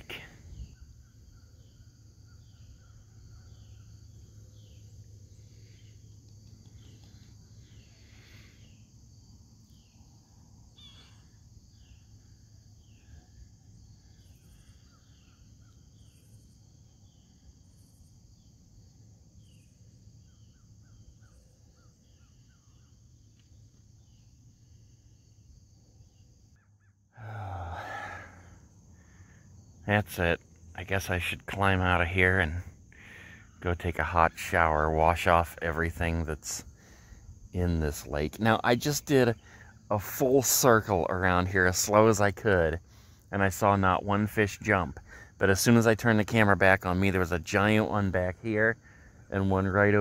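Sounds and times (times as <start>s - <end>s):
crickets chirping: 0.0s - 50.0s
short falling bird calls: 10.7s - 18.5s, 26.0s - 29.8s.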